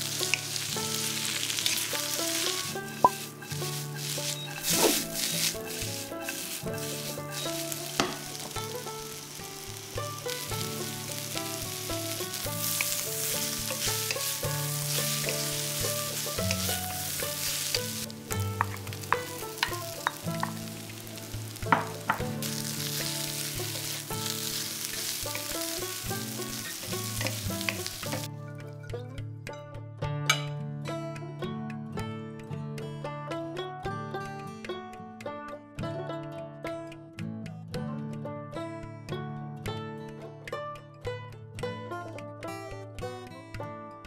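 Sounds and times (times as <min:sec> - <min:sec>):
noodles sizzling in a wok: 0:00.0 - 0:28.3
background music: 0:00.0 - 0:44.0
spatula knocking and scraping metal: 0:01.3 - 0:08.5.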